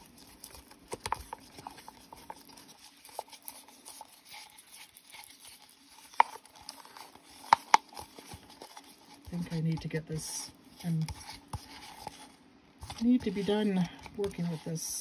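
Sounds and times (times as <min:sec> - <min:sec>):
stick scraping in paper cup: 0:00.0 - 0:15.0.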